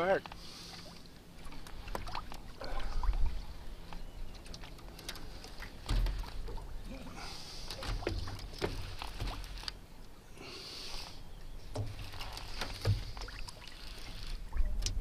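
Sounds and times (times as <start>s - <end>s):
water lapping at boat: 0.0s - 15.0s
wind rumble on microphone: 14.4s - 15.0s.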